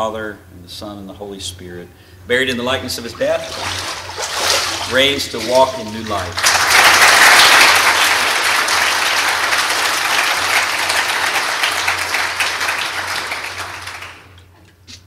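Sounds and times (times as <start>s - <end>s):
congregation applauding: 6.3s - 14.4s.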